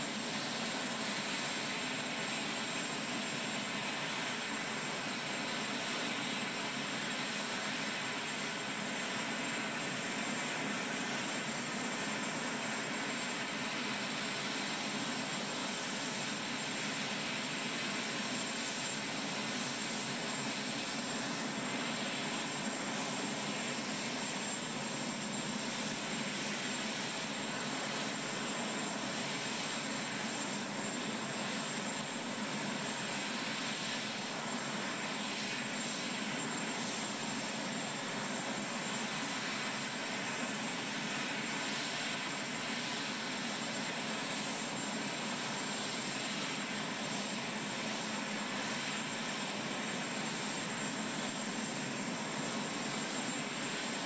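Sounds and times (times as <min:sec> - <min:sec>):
aircraft engines whining: 0:00.0 - 0:54.0.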